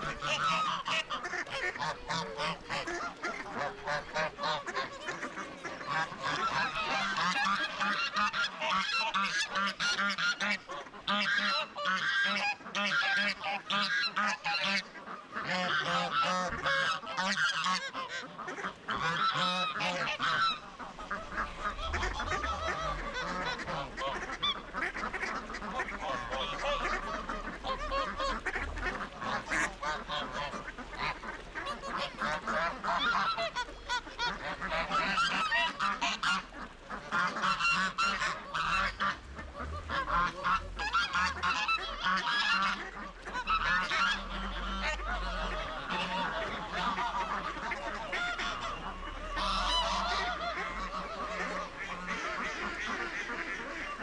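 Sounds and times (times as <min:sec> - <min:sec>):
geese honking: 0:00.0 - 0:54.0
low rumble: 0:20.1 - 0:32.6, 0:38.0 - 0:52.1.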